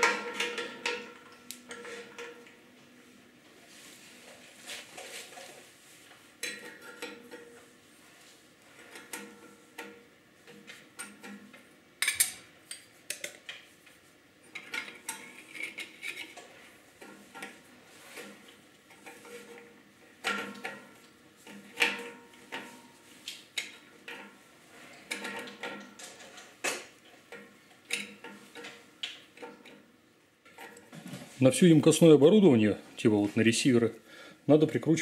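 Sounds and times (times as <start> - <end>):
metal pipe fittings clinking: 0.0 - 2.5.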